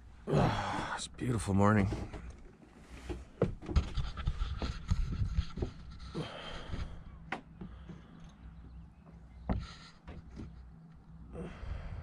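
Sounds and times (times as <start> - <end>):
steady low hum: 0.0 - 12.0
person breathing close to microphone: 4.3 - 8.4, 11.3 - 12.0.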